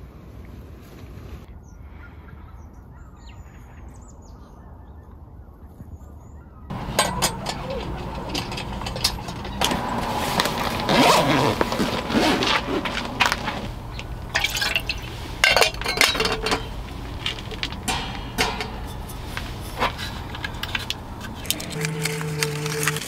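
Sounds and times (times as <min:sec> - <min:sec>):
metal cookware clinking: 0:06.7 - 0:10.5, 0:13.3 - 0:23.0.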